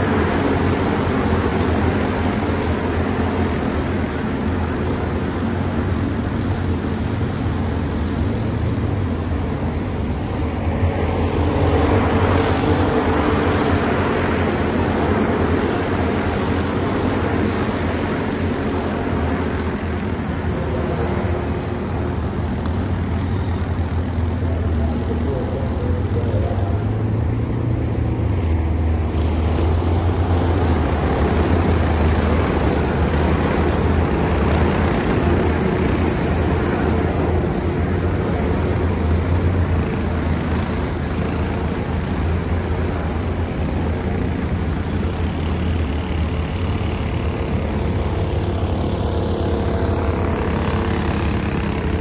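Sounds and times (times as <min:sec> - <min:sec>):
kart engines droning: 0:00.0 - 0:52.0.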